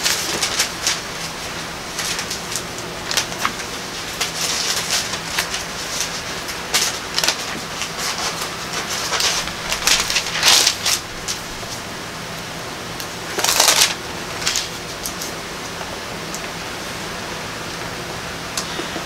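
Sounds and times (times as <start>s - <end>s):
thin paper pages rustling: 0.0s - 11.8s, 13.4s - 15.3s.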